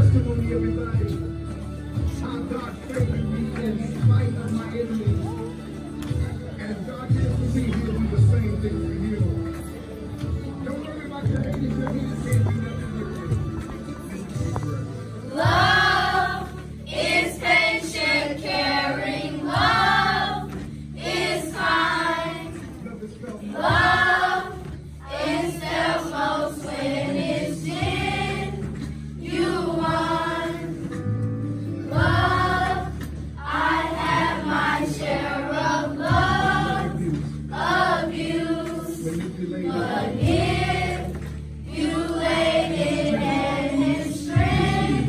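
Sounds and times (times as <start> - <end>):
children's choir singing: 15.2 - 31.1, 31.7 - 45.0.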